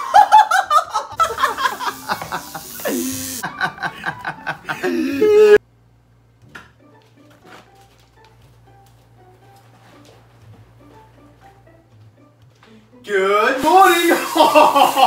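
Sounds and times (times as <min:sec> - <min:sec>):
men laughing: 0:00.0 - 0:05.6, 0:14.0 - 0:15.0.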